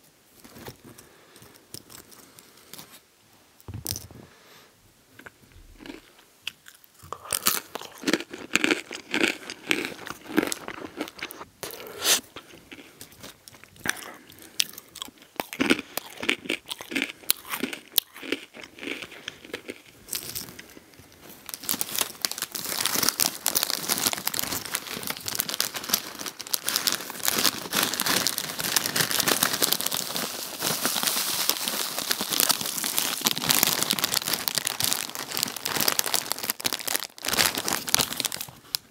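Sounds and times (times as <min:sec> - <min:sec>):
pretzels crunched and chewed: 0:05.2 - 0:38.9
foil snack bag crinkling: 0:15.6 - 0:38.9.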